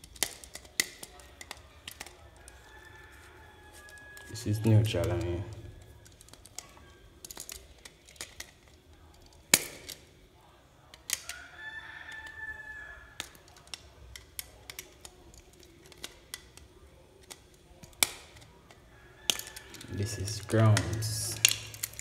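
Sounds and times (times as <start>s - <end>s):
screwdriver and metal parts clicking: 0.0s - 3.2s, 3.8s - 10.0s, 10.9s - 11.3s, 13.2s - 18.5s, 19.3s - 22.0s
rooster crowing: 2.2s - 6.0s, 11.2s - 13.3s, 18.9s - 21.4s.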